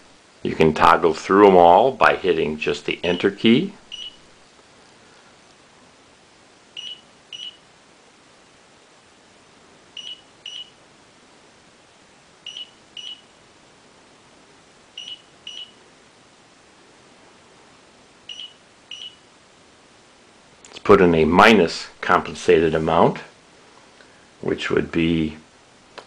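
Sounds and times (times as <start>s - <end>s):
high electronic beeps: 3.1s - 4.2s, 6.8s - 7.6s, 10.0s - 10.7s, 12.5s - 13.3s, 15.0s - 15.8s, 18.3s - 19.2s.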